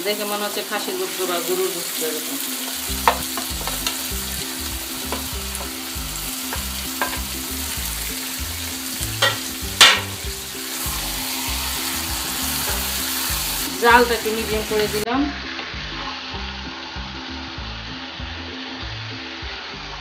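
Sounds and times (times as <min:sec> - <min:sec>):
meat sizzling in a hot pan: 0:00.0 - 0:20.0
utensils clicking against pan: 0:02.7 - 0:04.1, 0:06.5 - 0:07.4, 0:09.1 - 0:10.2.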